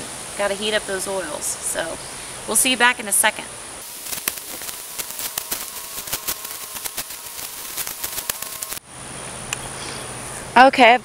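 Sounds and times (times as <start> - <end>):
steady rushing noise: 1.7 - 8.9
shovel digging into leaves and soil: 3.8 - 8.8.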